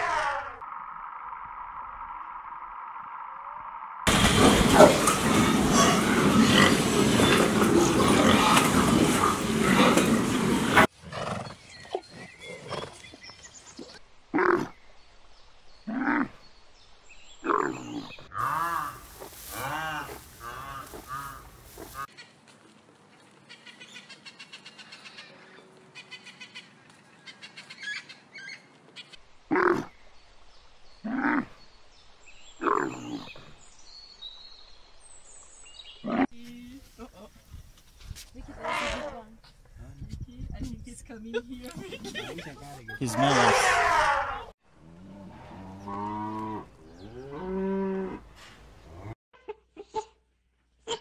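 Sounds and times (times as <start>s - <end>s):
zebras braying: 41.8s - 44.5s
camel calling: 43.0s - 44.5s.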